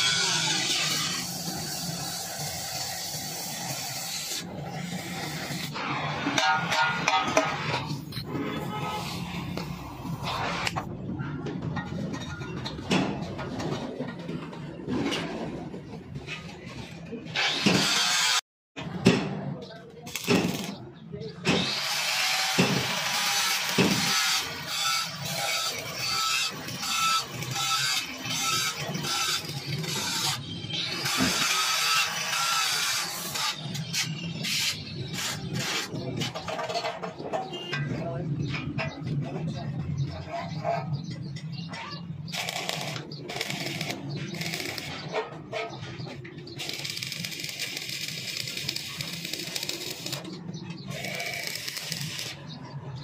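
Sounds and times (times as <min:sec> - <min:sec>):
welding arc crackling: 0:20.1 - 0:20.8, 0:42.4 - 0:45.0, 0:46.6 - 0:50.3, 0:50.9 - 0:52.4.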